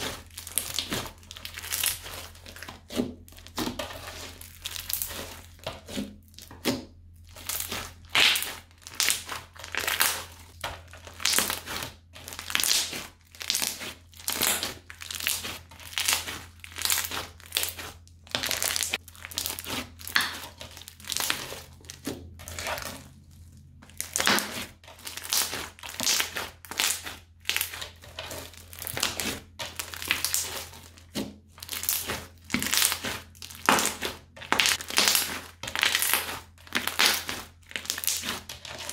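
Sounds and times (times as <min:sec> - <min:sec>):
crunchy slime squishing: 0:00.0 - 0:38.9.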